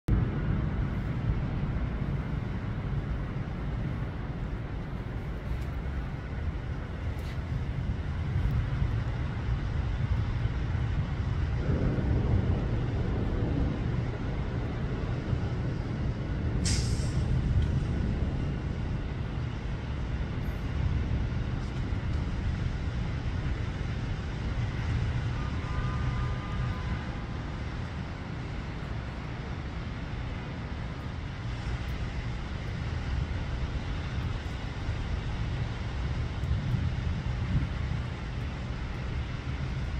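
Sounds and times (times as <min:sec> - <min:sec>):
steady low rumble: 0:00.0 - 0:39.9
short sharp hiss: 0:16.6 - 0:17.3.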